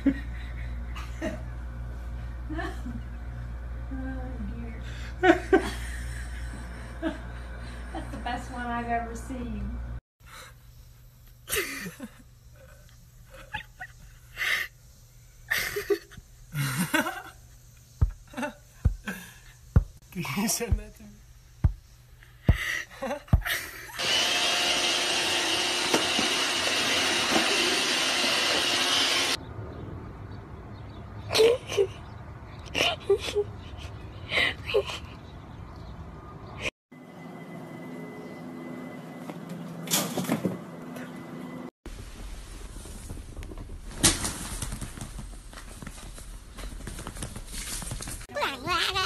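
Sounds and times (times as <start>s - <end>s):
robot vacuum hissing: 24.0s - 29.4s.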